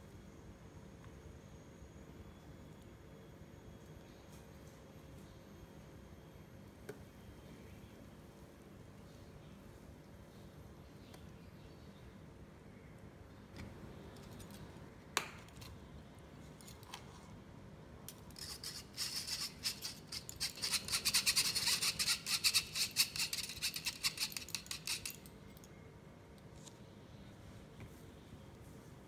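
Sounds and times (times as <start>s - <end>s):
spoon scraping through wire sieve: 18.3s - 25.2s.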